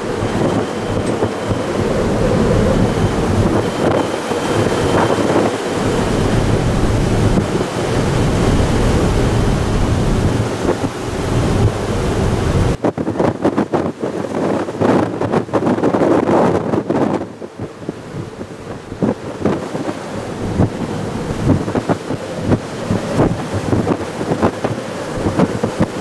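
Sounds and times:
low rumble: 0.0 - 5.2, 5.8 - 12.8
rough sea rushing: 0.0 - 26.0
wind buffeting microphone: 0.0 - 26.0.

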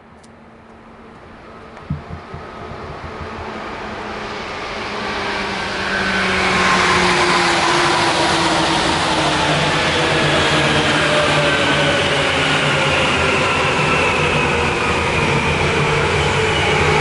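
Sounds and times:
train wheels rolling: 1.0 - 5.2
low thumps: 1.8 - 4.1.

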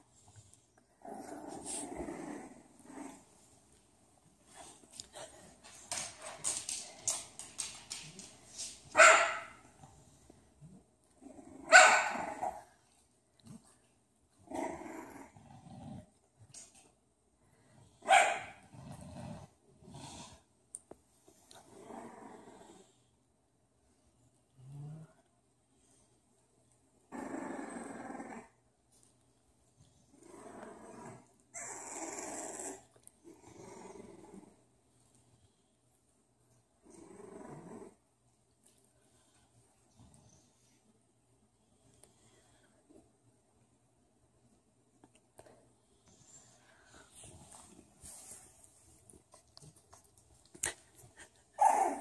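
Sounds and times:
dog growling: 0.9 - 3.3, 14.4 - 16.2, 18.6 - 20.4, 21.6 - 22.9, 27.1 - 28.6, 30.1 - 34.6, 36.8 - 38.0, 51.6 - 52.0
dog barking: 9.0 - 9.6, 11.7 - 12.4, 18.0 - 18.6.

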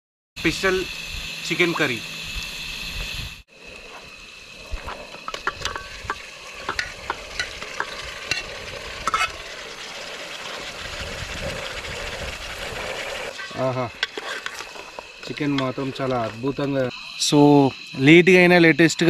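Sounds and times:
curry sizzling in a pan: 4.2 - 17.4
spoon clinking and scraping pan: 5.2 - 9.4, 13.3 - 16.3.

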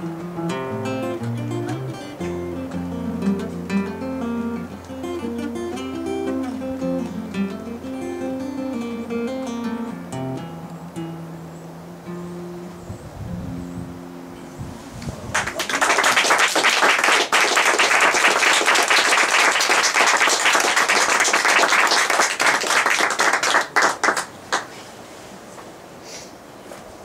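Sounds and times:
acoustic guitar and fiddle tune: 0.0 - 12.8
group clapping: 15.3 - 24.7.

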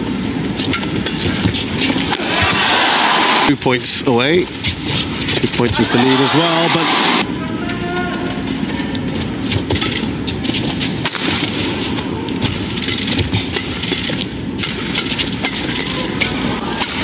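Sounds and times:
crowd din: 2.1 - 3.5, 5.4 - 8.9, 15.4 - 17.0
racket hitting shuttlecock: 9.7 - 17.0.

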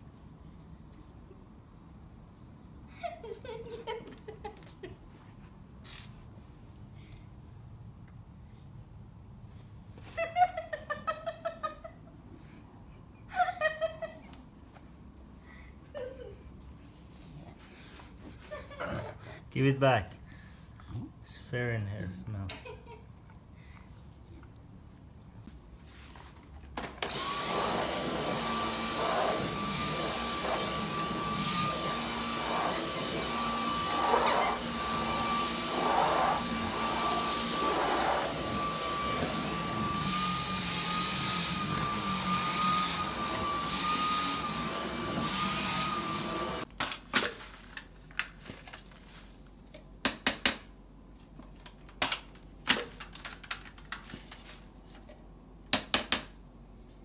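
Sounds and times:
vacuum cleaner whine: 26.8 - 46.7.

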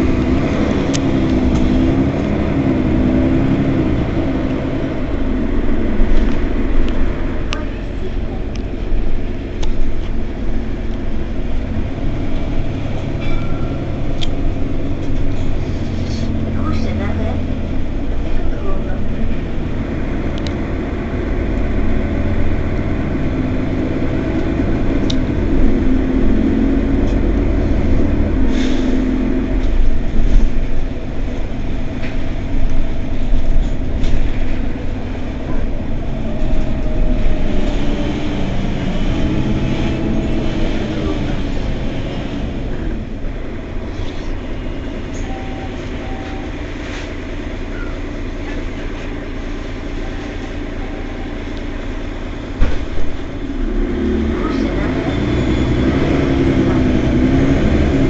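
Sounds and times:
bus engine accelerating: 0.0 - 58.0
rumble of the ride: 0.0 - 58.0
short beeps: 45.2 - 46.6, 50.0 - 51.5.

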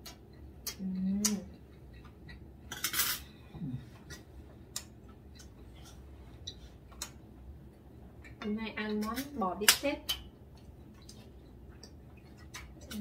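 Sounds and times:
cutlery scraping plate: 2.7 - 3.3.

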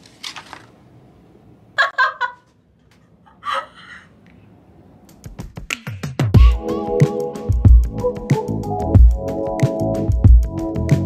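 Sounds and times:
electronic background music: 6.4 - 11.0.

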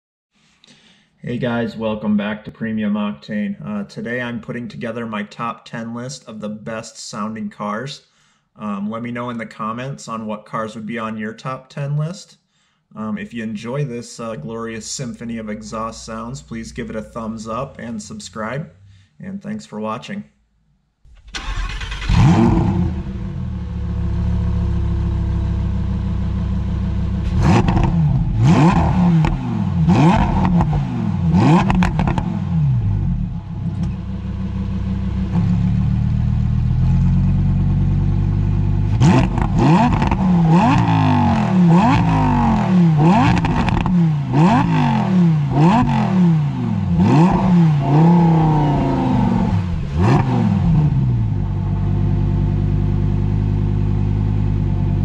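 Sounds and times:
engine free revs: 21.1 - 25.4, 27.1 - 37.6, 38.8 - 51.5
sports car engine idling: 22.8 - 55.0.

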